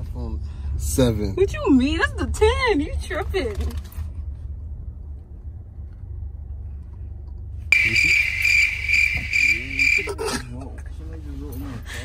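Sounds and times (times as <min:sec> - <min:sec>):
low steady rumble: 0:00.0 - 0:11.8
insect-like chirping trill: 0:07.7 - 0:10.2.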